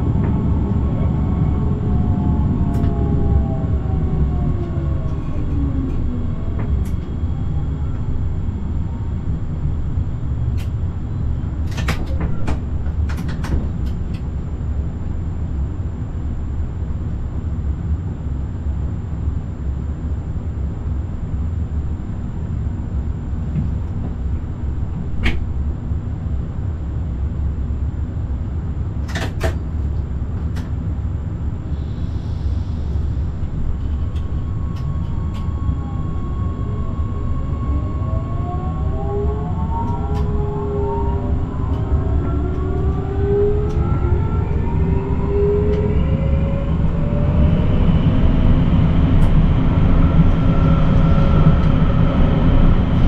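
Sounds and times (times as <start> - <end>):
electric train rumbling on rails: 0.0 - 53.0
track clicks and knocks: 11.6 - 14.3
motor whine: 31.7 - 53.0.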